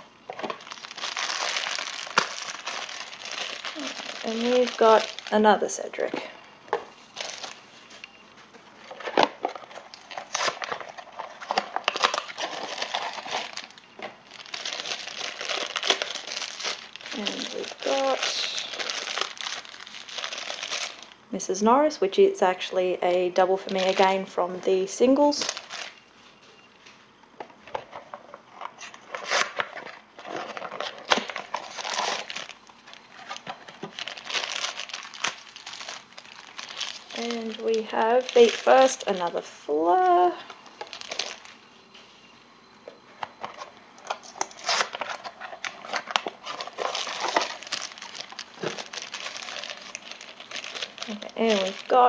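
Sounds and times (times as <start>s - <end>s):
foil bag crinkling: 0.3s - 6.3s, 7.0s - 8.0s, 8.8s - 21.2s, 23.0s - 26.0s, 29.0s - 41.6s, 43.3s - 52.0s.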